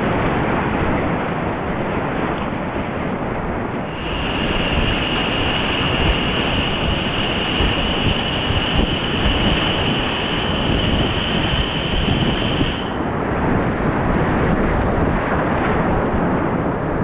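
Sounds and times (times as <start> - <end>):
whitewater rushing: 0.0 - 14.1
wind buffeting microphone: 0.0 - 17.0
high hiss: 3.8 - 13.6.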